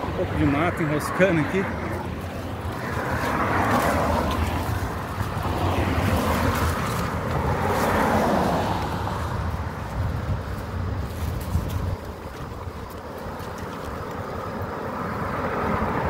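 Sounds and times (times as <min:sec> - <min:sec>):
cars passing: 0:00.0 - 0:16.0
wind rumbling on microphone: 0:00.0 - 0:16.0.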